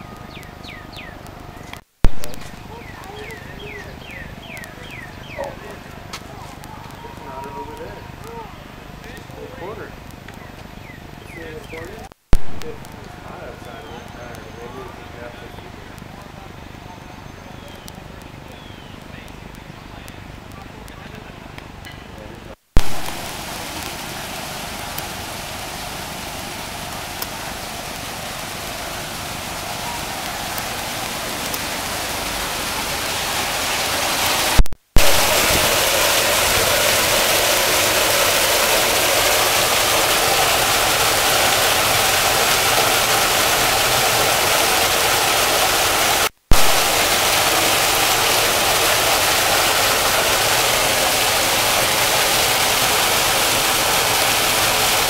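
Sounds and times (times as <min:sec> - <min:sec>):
waterfall rushing: 0:22.8 - 0:55.0.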